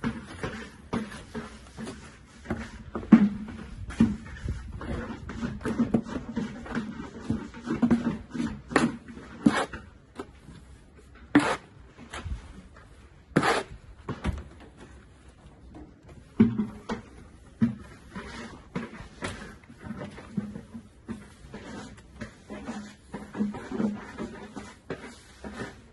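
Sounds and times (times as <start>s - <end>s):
trowel scraping mortar: 0.0s - 14.2s, 16.2s - 25.9s.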